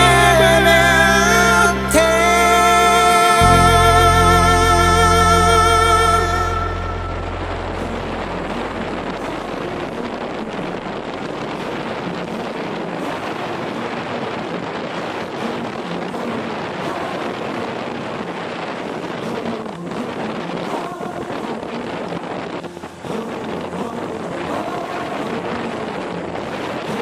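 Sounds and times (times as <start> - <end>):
wind rushing over microphone: 5.1 - 27.0.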